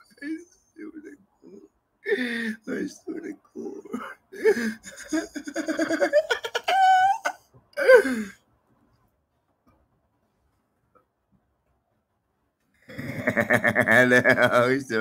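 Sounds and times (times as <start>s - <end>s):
man laughing hard: 3.6s - 8.1s, 12.9s - 14.7s.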